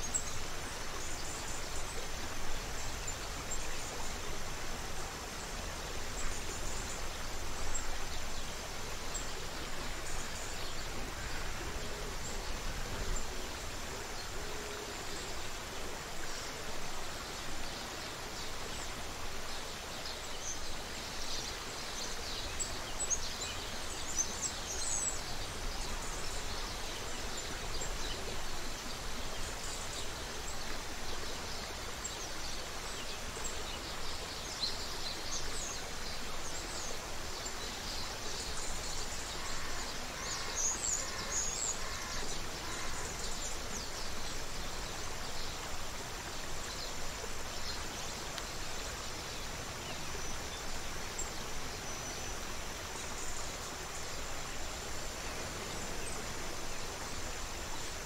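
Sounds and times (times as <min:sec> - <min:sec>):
creek water running: 0:00.0 - 0:58.0.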